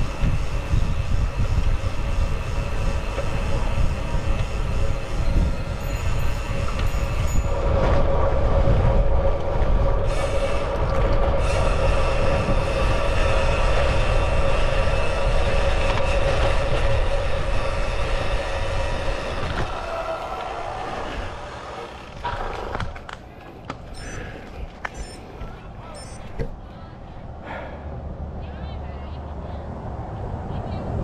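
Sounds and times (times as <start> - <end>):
wind rushing over microphone: 0.0 - 19.9
steady whine: 23.6 - 26.7.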